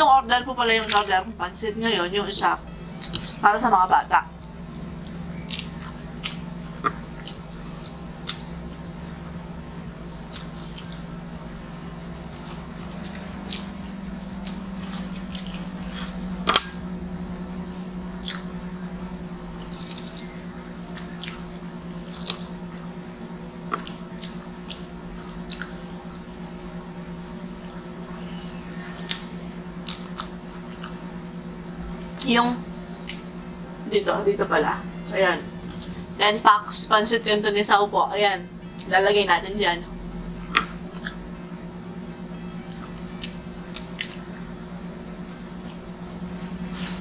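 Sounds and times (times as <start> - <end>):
steady low hum: 0.0 - 47.0
chewing food: 4.7 - 9.0, 9.7 - 18.6, 19.6 - 23.0, 23.6 - 25.9, 27.3 - 31.2, 32.8 - 33.4, 35.6 - 36.1, 40.2 - 44.6.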